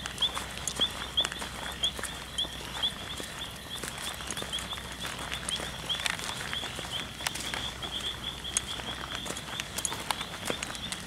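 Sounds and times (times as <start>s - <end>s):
crickets chirping: 0.0s - 11.0s
frogs calling: 0.0s - 11.0s.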